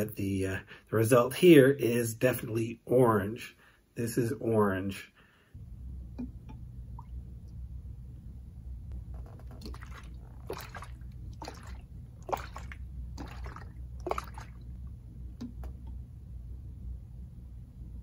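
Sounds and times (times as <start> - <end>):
liquid sloshing in plastic bottle: 9.0 - 15.9.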